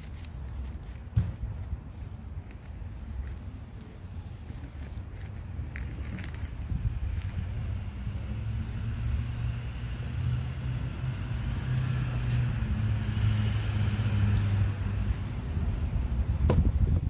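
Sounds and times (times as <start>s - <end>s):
truck driving past: 7.4s - 16.4s.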